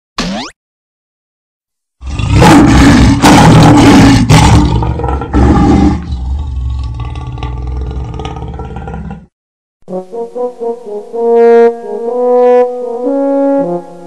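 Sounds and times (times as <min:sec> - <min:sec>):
lion roaring: 0:02.0 - 0:09.3.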